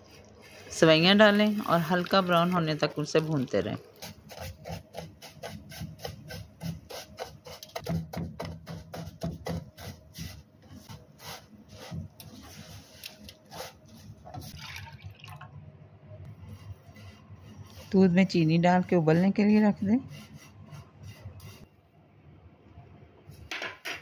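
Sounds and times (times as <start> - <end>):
spatula stirring in a pan: 3.8 - 14.5.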